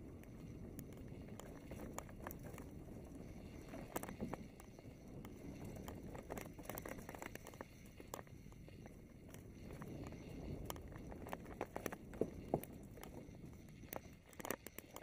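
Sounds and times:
bike clicks and rattles: 0.0 - 15.0
bike tyre rumble: 0.0 - 15.0.

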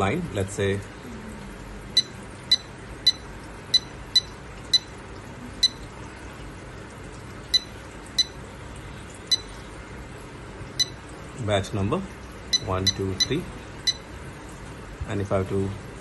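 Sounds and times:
short high key-press beeps: 2.0 - 5.0, 5.6 - 5.9, 7.5 - 8.4, 9.3 - 9.6, 10.8 - 11.0, 12.5 - 14.1.

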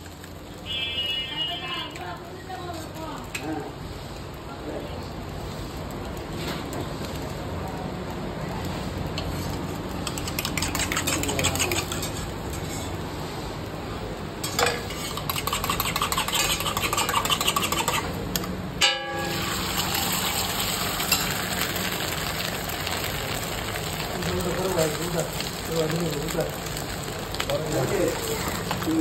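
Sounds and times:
frying hiss: 0.0 - 29.0
spoon beating eggs in metal bowl: 10.0 - 12.3, 14.5 - 18.2
ringing metal clang: 18.8 - 19.6.

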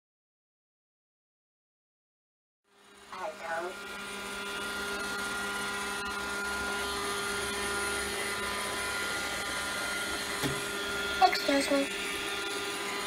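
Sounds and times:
robot vacuum motor whine: 2.7 - 13.0.

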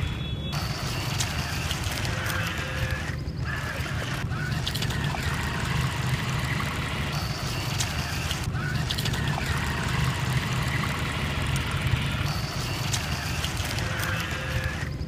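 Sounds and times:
paddle wheels splashing water: 4.5 - 13.8.

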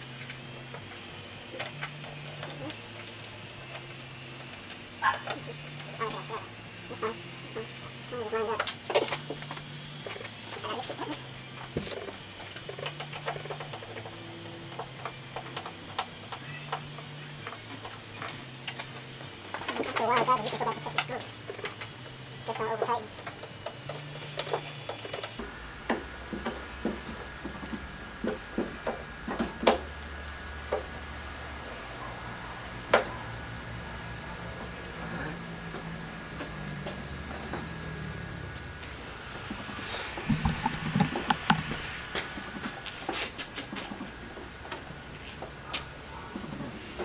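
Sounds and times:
faint steady hum: 0.0 - 47.0.

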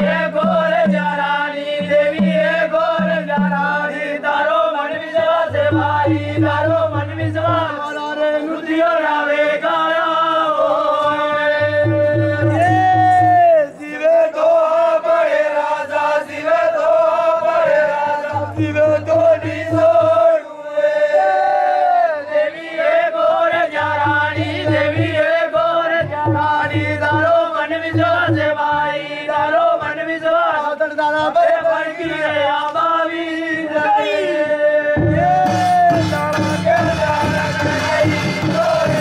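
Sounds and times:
low drumbeats: 0.0 - 8.0, 11.0 - 13.7, 17.0 - 20.4, 23.7 - 30.0, 35.0 - 39.0
men chanting together: 0.0 - 39.0.

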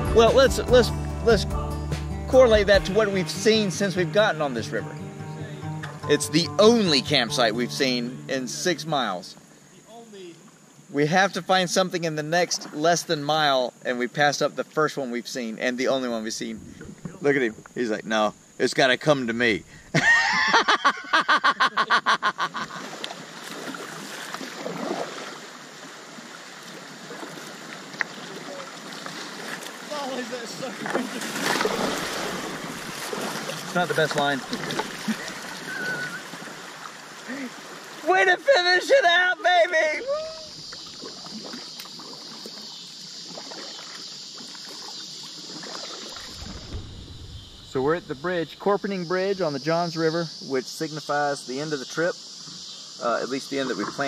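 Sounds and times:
high-pitched insect chorus: 0.0 - 54.0
paddle dipping and dripping: 19.6 - 48.8
person laughing hard: 19.9 - 22.8
river water washing around raft: 22.4 - 48.6.

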